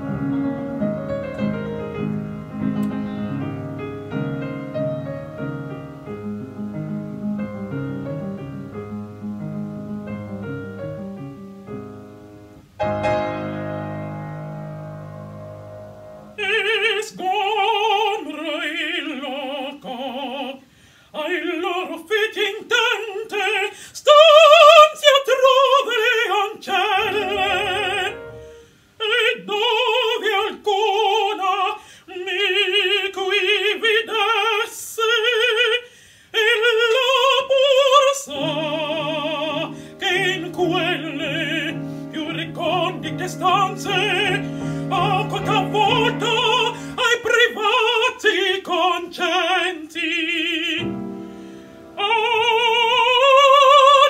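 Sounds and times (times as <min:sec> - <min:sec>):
piano chords: 0:00.0 - 0:17.0, 0:25.6 - 0:30.0, 0:37.0 - 0:54.0
woman singing opera: 0:16.3 - 0:51.3, 0:51.9 - 0:54.0
singer breathing: 0:20.6 - 0:21.2, 0:23.7 - 0:24.0, 0:28.3 - 0:29.0, 0:31.8 - 0:32.1, 0:35.8 - 0:36.4, 0:39.7 - 0:40.0, 0:41.8 - 0:42.2, 0:44.4 - 0:44.9, 0:46.7 - 0:47.0, 0:51.2 - 0:51.9.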